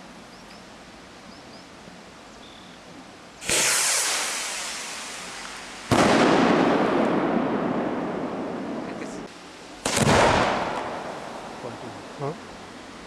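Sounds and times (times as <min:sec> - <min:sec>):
firework mortar launch bang: 0:03.4 - 0:08.9, 0:09.8 - 0:11.6
firework shell bursting bang: 0:03.4 - 0:08.9, 0:09.8 - 0:11.6.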